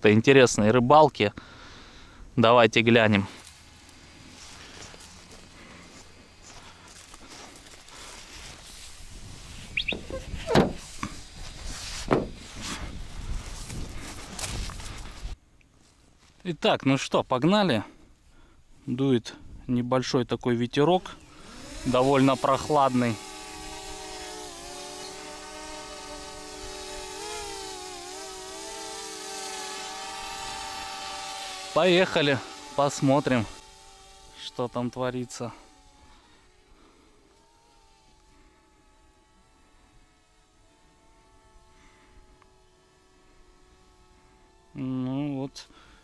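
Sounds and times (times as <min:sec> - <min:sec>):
drone propellers whining: 0:08.9 - 0:11.5, 0:21.2 - 0:44.9
wind rumbling on microphone: 0:08.9 - 0:15.3
sharp knocks and thumps: 0:09.9 - 0:11.2, 0:12.0 - 0:12.4.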